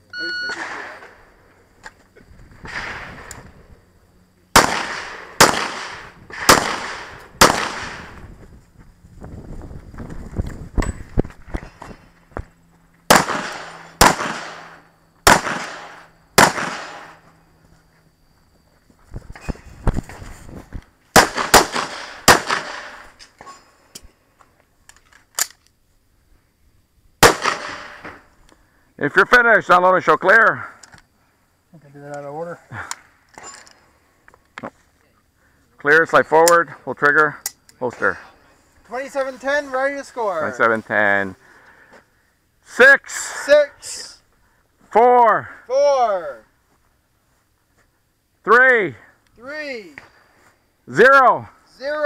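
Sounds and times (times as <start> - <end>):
handgun shots with echo: 4.6 - 8.1, 13.1 - 17.1, 21.2 - 23.0, 27.2 - 28.0.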